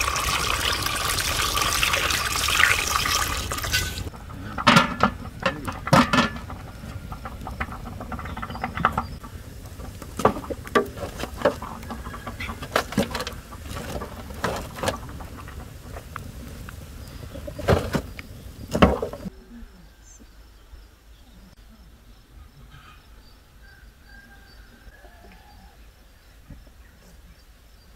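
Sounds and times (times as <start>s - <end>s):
wood fire crackling and popping: 0.0s - 19.3s
faint bird chirps: 16.9s - 27.9s.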